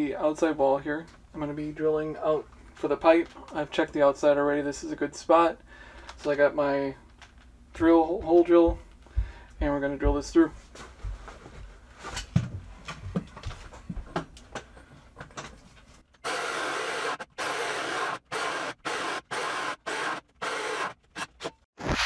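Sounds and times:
light knocks and handling: 10.0 - 16.0
cordless drill bursts: 16.2 - 22.0.

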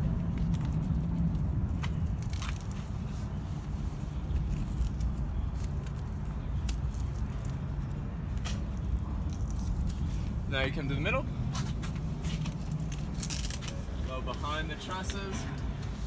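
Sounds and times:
steady low rumble: 0.0 - 16.0
velcro crackles and rasps: 0.0 - 16.0
fabric rustling and scraping: 0.3 - 10.5, 11.5 - 16.0.

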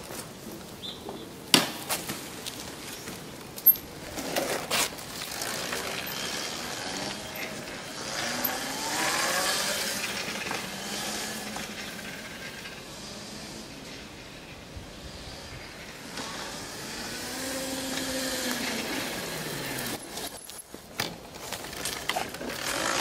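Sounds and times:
electric motorcycle motor whine: 5.1 - 20.2.

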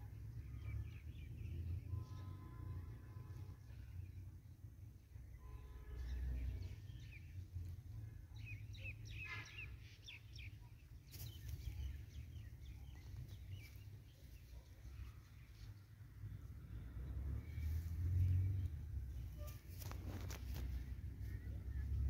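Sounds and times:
small birds chirping: 6.0 - 16.0.

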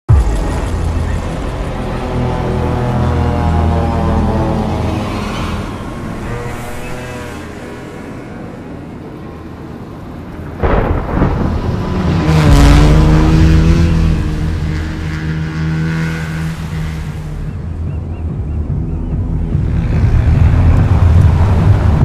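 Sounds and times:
loud rushing boom: 10.6 - 15.4
off-road vehicle engine revving: 12.1 - 22.0.

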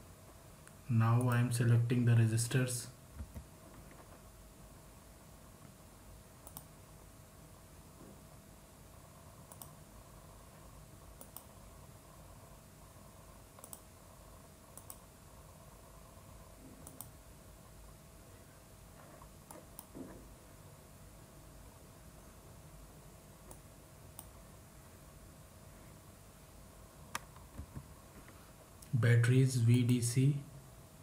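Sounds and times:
faint steady hum: 0.0 - 31.0
computer mouse clicking: 6.4 - 6.7, 9.4 - 9.8, 11.2 - 11.5, 13.5 - 13.9, 14.7 - 15.1, 16.8 - 17.2, 19.4 - 20.0, 23.5 - 24.4.

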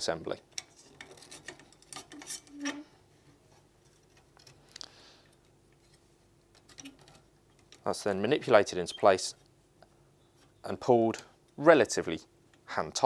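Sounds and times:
steel strap clicking and scraping: 0.5 - 2.8.

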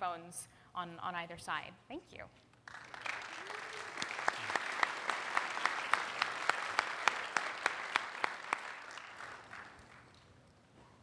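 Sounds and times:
close hands clapping: 2.5 - 10.4
audience applauding: 2.6 - 10.4.

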